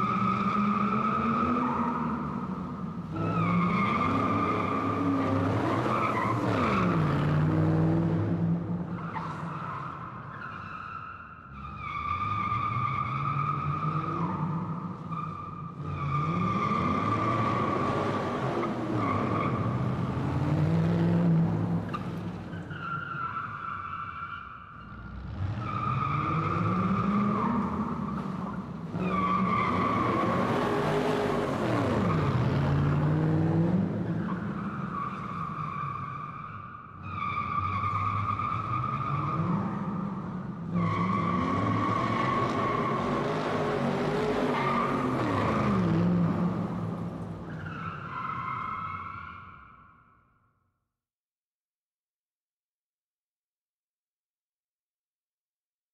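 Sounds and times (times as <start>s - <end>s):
car tires squealing: 0.0s - 7.3s, 8.9s - 20.3s, 21.8s - 32.8s, 34.0s - 50.1s.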